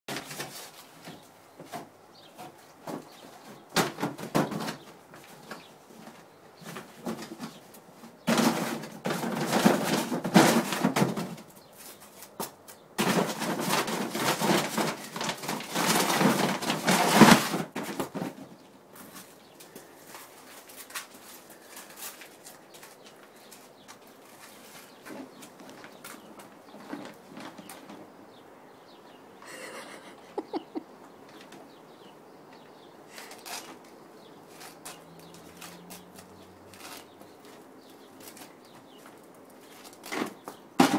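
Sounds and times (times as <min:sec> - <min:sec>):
fabric rustling and flapping: 0:13.0 - 0:18.5
taps and knocks on a bin: 0:40.1 - 0:40.9.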